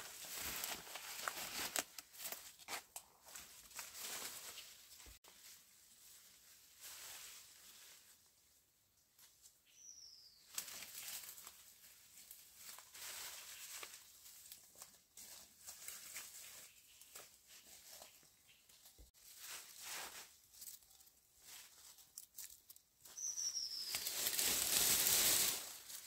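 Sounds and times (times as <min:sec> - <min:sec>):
faint rustling and handling: 0:00.0 - 0:08.3, 0:10.5 - 0:26.0
high falling chirp: 0:23.1 - 0:24.4.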